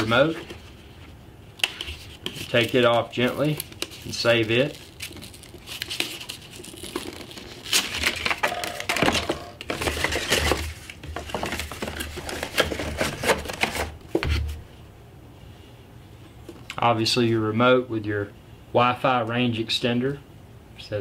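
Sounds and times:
paper wrapper rustling: 0:01.9 - 0:14.2.

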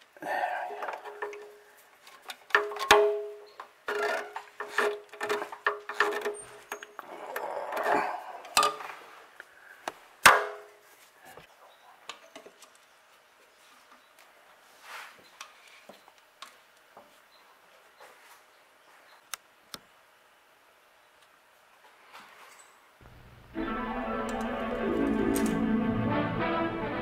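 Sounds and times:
tools and metal parts knocking: 0:00.8 - 0:01.6, 0:02.3 - 0:07.0.

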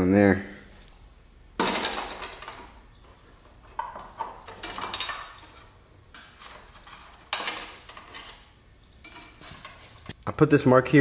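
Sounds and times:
metal clinks and rattles: 0:03.7 - 0:05.7.

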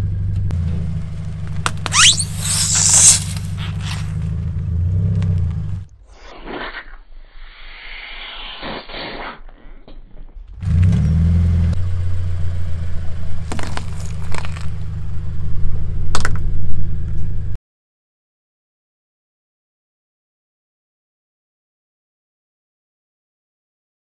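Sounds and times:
car engine humming: 0:00.0 - 0:06.0, 0:10.6 - 0:17.6
cucumber crunching and splatting: 0:13.5 - 0:14.8
tyre squishing over slime: 0:13.5 - 0:14.8.

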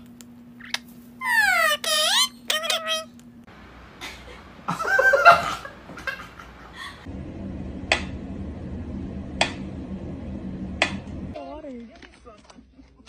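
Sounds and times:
steady low hum: 0:02.2 - 0:11.4.

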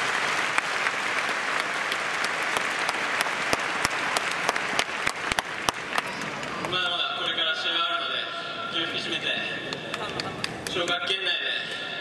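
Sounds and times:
crowd clapping: 0:00.0 - 0:07.0, 0:09.6 - 0:11.2.

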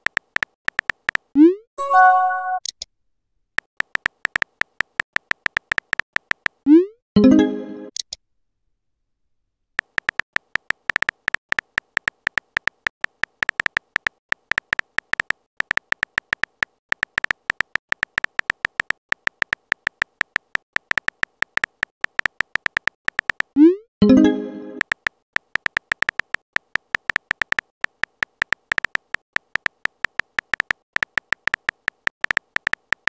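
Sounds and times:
phone keyboard tap clicks: 0:24.8 - 0:33.0.

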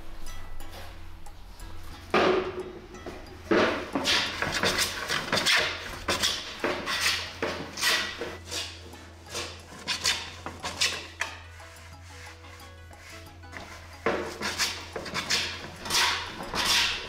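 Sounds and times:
hand plane shaving wood: 0:03.5 - 0:17.0.

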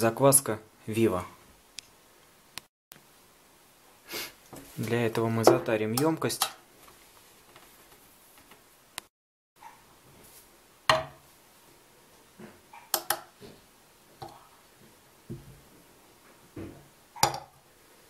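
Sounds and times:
dishes knocking and clinking: 0:10.9 - 0:11.2, 0:12.9 - 0:13.4, 0:16.6 - 0:17.6.

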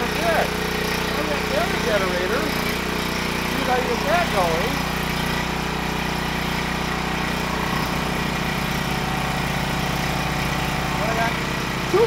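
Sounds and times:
generator engine running: 0:00.0 - 0:12.0
inverter generator pulsing: 0:00.0 - 0:12.0.

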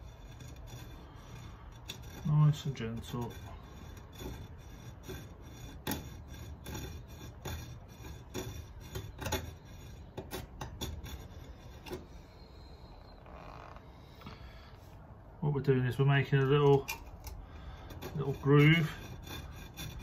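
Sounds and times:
file rasping on steel: 0:00.0 - 0:13.0, 0:16.4 - 0:20.0.

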